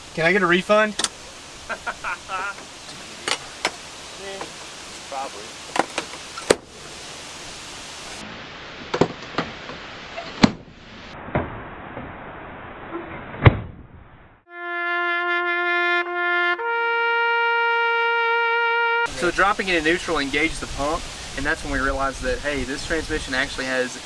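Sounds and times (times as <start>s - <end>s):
hiss: 1.0s - 8.2s, 19.1s - 24.0s
trumpet-like brass note: 14.5s - 19.2s.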